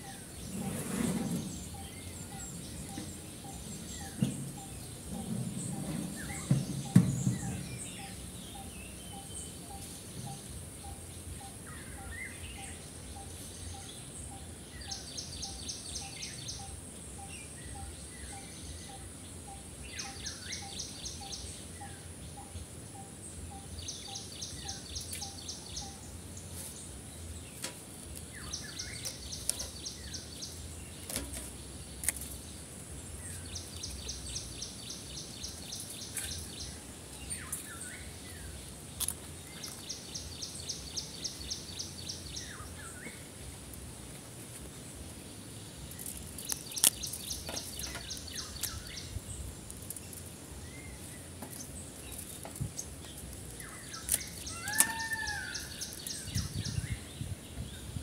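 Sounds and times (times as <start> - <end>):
soft bird call pipping: 53.6 - 56.8.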